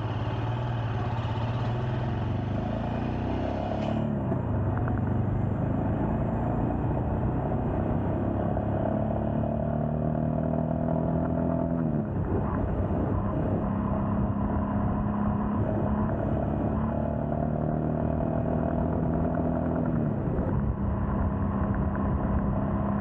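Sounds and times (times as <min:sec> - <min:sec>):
motorcycle engine accelerating: 0:00.0 - 0:23.0.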